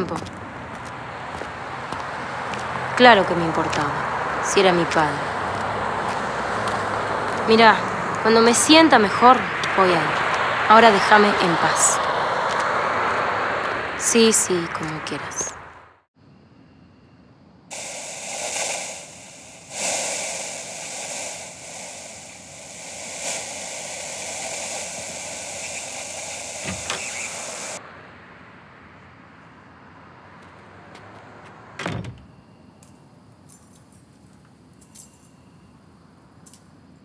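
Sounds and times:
loud hiss: 0:17.7 - 0:27.8.

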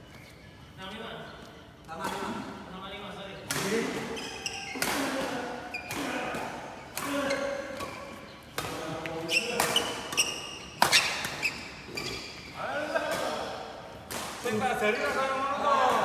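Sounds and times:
shoes squeaking on court: 0:00.0 - 0:02.3, 0:03.9 - 0:13.1
rackets hitting shuttlecock: 0:03.4 - 0:12.4, 0:13.0 - 0:15.2.

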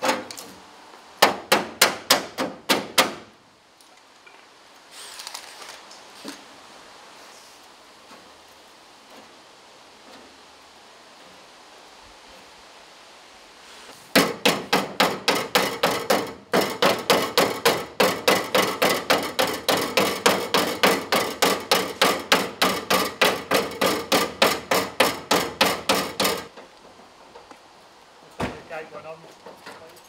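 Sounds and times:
hammer striking metal: 0:14.2 - 0:26.5.

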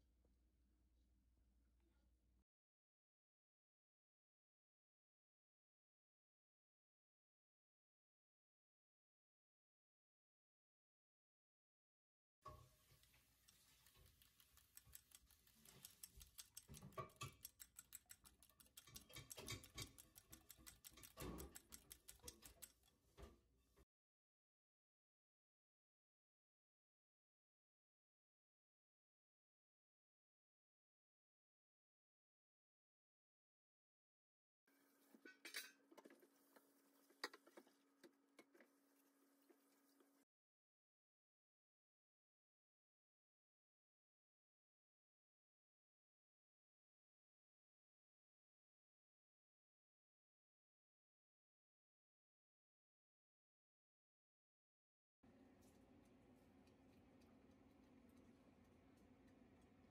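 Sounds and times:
fork clicking against glass bowl: 0:13.5 - 0:23.0.

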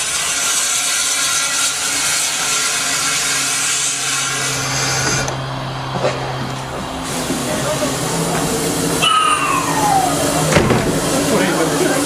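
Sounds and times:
steam hissing from locomotive: 0:06.8 - 0:12.0.

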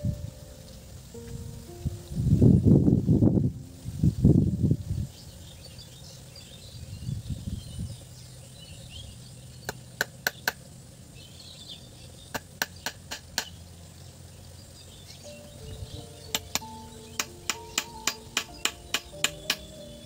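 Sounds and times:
faint bird chirping: 0:03.5 - 0:20.0
hammer tapping nail into wood: 0:17.2 - 0:19.7.

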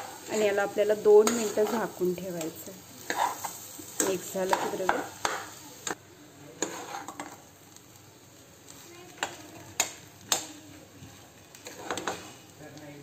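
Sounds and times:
faint sizzle: 0:00.0 - 0:13.0
spoon scraping mashed potato in pan: 0:01.2 - 0:06.0, 0:06.6 - 0:07.4, 0:11.6 - 0:12.3.

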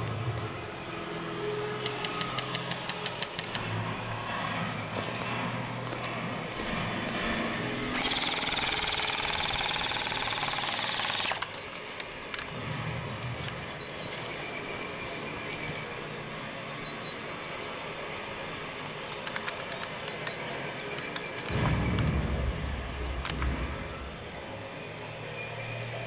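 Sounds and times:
outdoor ambience: 0:00.0 - 0:26.0
airsoft gun automatic fire: 0:07.9 - 0:11.6.

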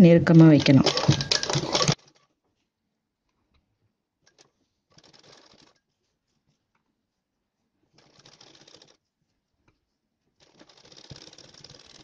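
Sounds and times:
sewing machine stitching: 0:00.0 - 0:02.3, 0:04.2 - 0:05.8, 0:07.9 - 0:09.0, 0:10.4 - 0:12.0
soft rustle: 0:00.8 - 0:12.0.

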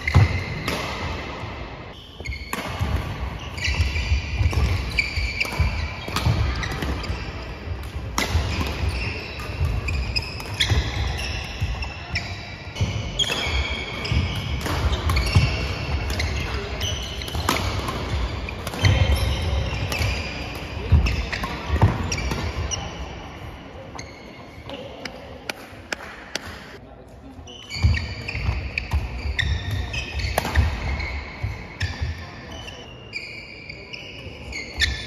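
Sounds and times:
rackets hitting shuttlecock: 0:00.0 - 0:23.1, 0:25.0 - 0:26.8, 0:27.6 - 0:32.2
shoes squeaking: 0:01.9 - 0:02.6, 0:03.3 - 0:07.6, 0:08.2 - 0:23.1, 0:27.4 - 0:35.0.

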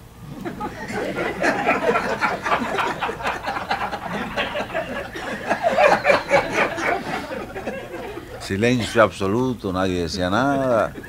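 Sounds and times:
audience laughing: 0:00.2 - 0:09.4, 0:10.1 - 0:11.0.

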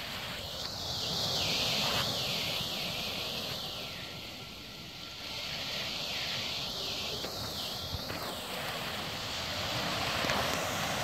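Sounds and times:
waves washing onto pebbles: 0:05.4 - 0:11.0.

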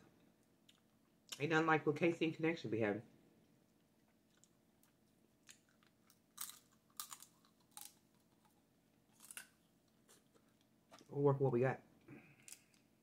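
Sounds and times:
crab shell crackling: 0:04.1 - 0:10.8.

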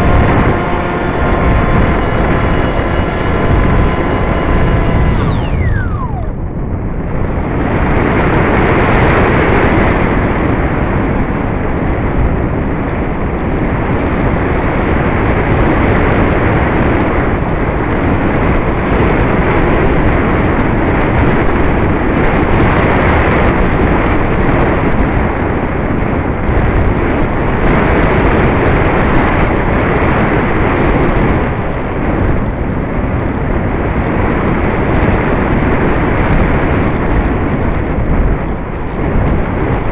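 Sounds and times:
faint high whine: 0:00.0 - 0:07.7
airflow rushing over microphone: 0:00.0 - 0:15.3.

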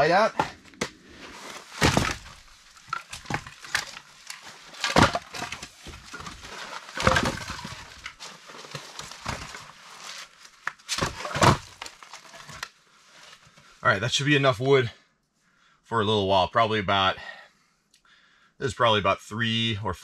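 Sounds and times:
firewood logs knocking and clattering: 0:00.0 - 0:12.7.

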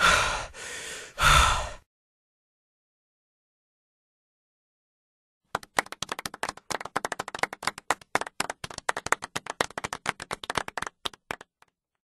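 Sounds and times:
small group clapping: 0:05.5 - 0:11.8.

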